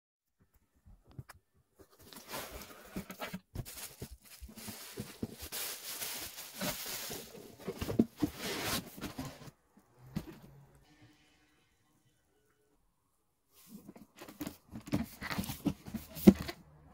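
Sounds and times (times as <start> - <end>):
bubble wrap rustling: 1.9 - 9.2.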